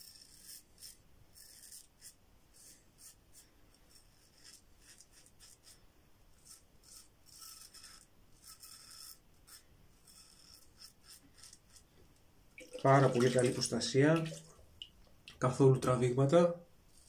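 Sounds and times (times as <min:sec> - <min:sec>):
razor scraping stubble: 0:00.0 - 0:11.9.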